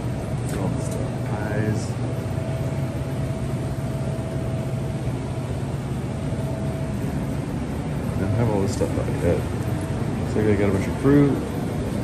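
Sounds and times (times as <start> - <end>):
faint thin whine: 0.0 - 12.0
refrigerated coolers humming: 0.0 - 12.0.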